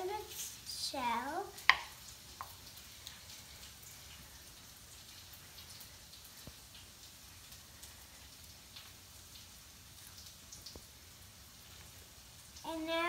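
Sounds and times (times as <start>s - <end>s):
onions sizzling in a pan: 0.0s - 9.9s.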